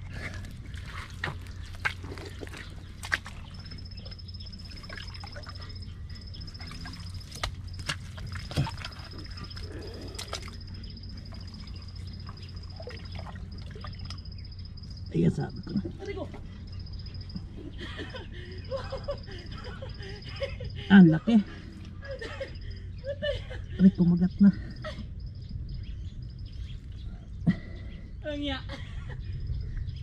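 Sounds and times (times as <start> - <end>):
wet mud squelching: 0.0 - 14.3
insect trilling: 1.2 - 17.5.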